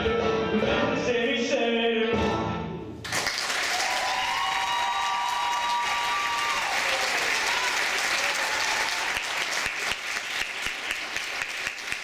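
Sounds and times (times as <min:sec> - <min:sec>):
music: 0:00.0 - 0:03.1
audience applauding: 0:03.1 - 0:12.0.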